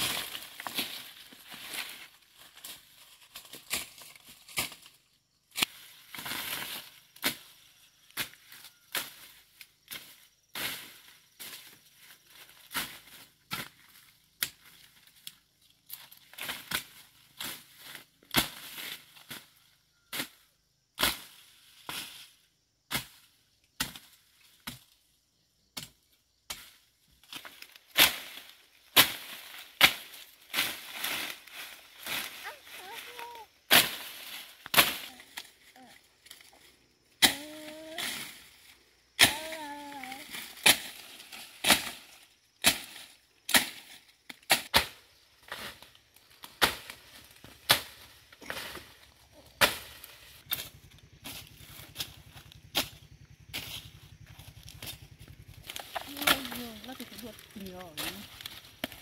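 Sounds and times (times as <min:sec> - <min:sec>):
leaves swishing and rustling: 0:00.0 - 0:13.7, 0:27.2 - 0:37.0, 0:37.6 - 0:59.0
blade chopping undergrowth: 0:00.0 - 0:20.4, 0:22.9 - 0:25.0, 0:25.8 - 0:59.0.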